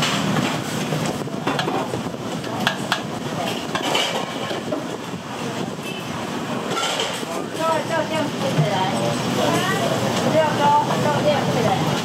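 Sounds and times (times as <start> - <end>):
utensils and dishes clinking: 0.0 - 4.9, 5.9 - 10.3.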